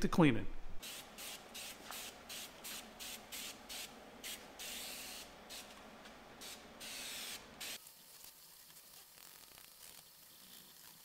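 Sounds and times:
aerosol spray hissing: 6.4 - 7.8.

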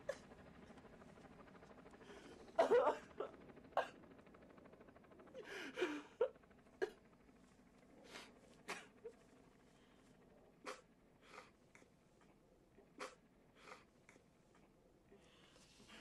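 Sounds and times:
man sobbing: 2.6 - 3.4, 5.4 - 7.0.

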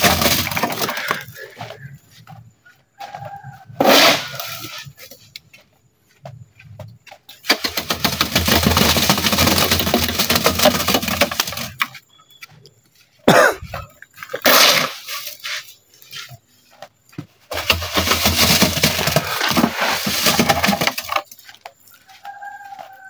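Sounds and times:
trowel scraping wet concrete: 3.8 - 4.9, 14.3 - 15.7, 17.5 - 21.2.

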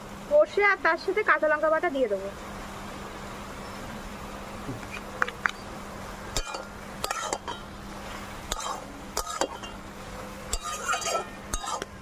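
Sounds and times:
low steady hum: 0.0 - 12.0
metal spatula scraping a pan: 6.4 - 7.6, 8.5 - 9.8, 10.5 - 12.0.

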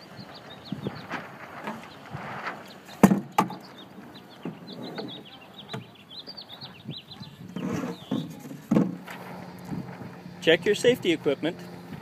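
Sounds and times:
sharp wooden knocks: 3.0 - 3.6.

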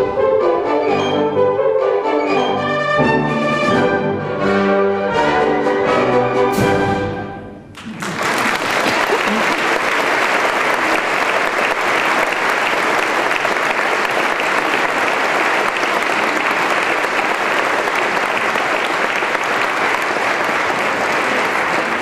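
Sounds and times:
large audience applauding: 7.8 - 22.0.

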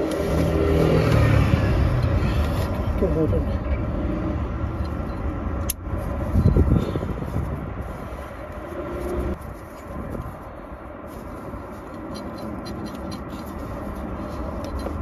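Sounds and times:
gloved hands rustling: 5.7 - 15.0.

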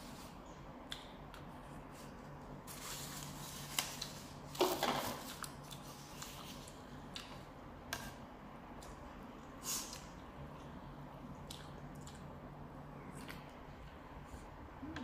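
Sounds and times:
person chewing: 9.8 - 12.4.

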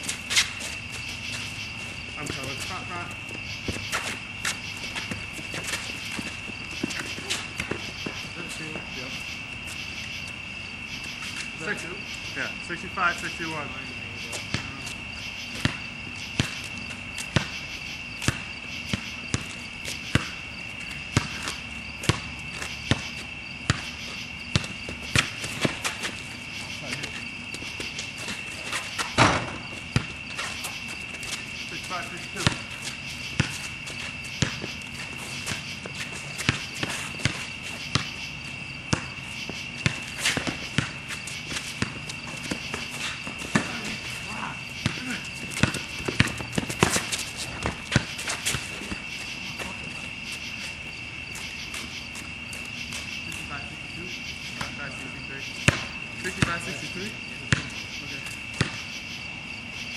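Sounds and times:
players' footsteps: 0.0 - 17.6, 18.2 - 53.9, 54.5 - 58.9
insects chirring: 0.0 - 59.9
basketball bouncing on court: 14.4 - 14.8, 15.5 - 16.7, 17.3 - 17.6, 18.2 - 20.4, 21.1 - 26.2, 26.8 - 49.8, 55.6 - 56.8, 57.5 - 57.8, 58.5 - 58.8.

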